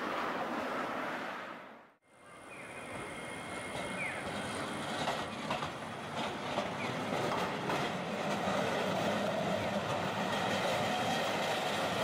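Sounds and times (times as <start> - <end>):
tram running noise: 2.2 - 12.0
wheels clacking over track joints: 3.6 - 12.0.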